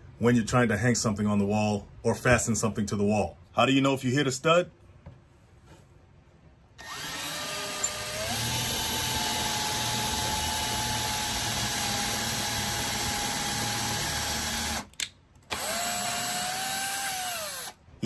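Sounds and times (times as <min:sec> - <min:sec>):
drill motor whine: 0:06.8 - 0:14.8, 0:15.5 - 0:17.8.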